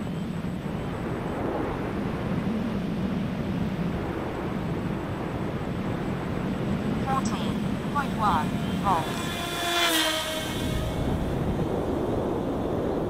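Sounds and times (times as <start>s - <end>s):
model airplane motor drone: 5.5s - 13.0s.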